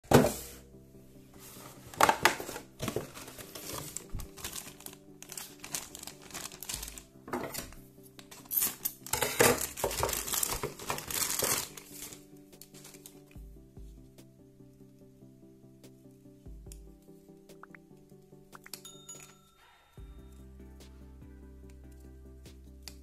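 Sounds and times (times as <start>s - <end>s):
background music: 0.0s - 23.0s
cardboard box being opened: 1.7s - 7.0s, 9.6s - 12.2s
plastic bag crinkling: 1.9s - 7.8s, 8.4s - 13.2s.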